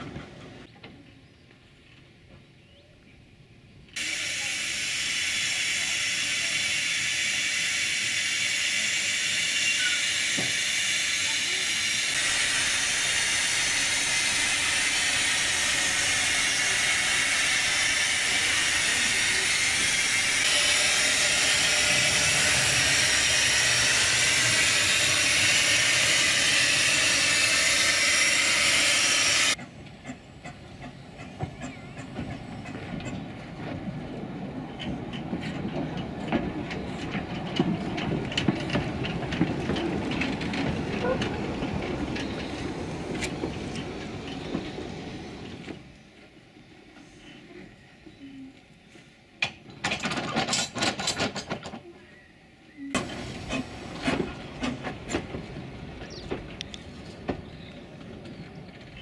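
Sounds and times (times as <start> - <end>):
steam hissing from locomotive: 4.0 - 31.7, 52.8 - 56.3
locomotive clanking over rails: 8.2 - 46.0, 49.4 - 51.9, 52.8 - 59.0.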